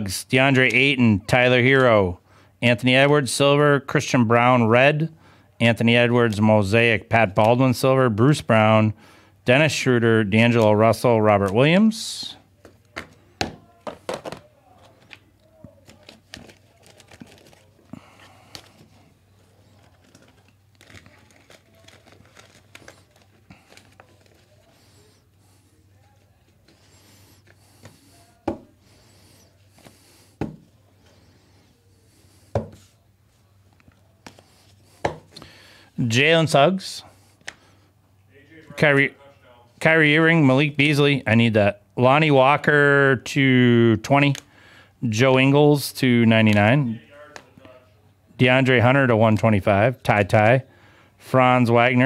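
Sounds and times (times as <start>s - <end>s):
plastic wrappers rustling: 13.8s - 28.4s.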